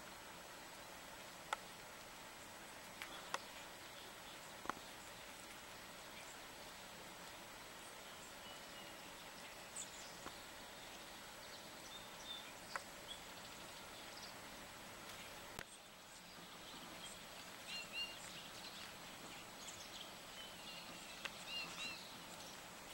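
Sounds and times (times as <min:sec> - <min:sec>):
songbirds chirping: 0:00.0 - 0:22.9
faint ticks: 0:00.7 - 0:06.4, 0:09.8 - 0:10.4, 0:12.3 - 0:14.3, 0:15.0 - 0:20.1, 0:20.8 - 0:22.9.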